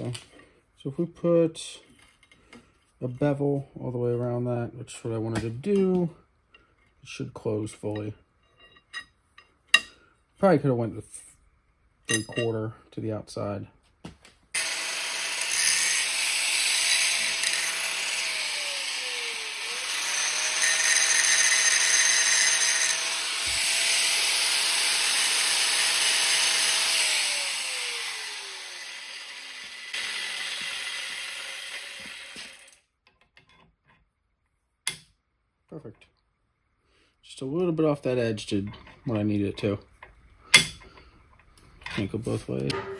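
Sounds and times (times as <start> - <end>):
angle grinder grinding metal: 14.6 - 32.8.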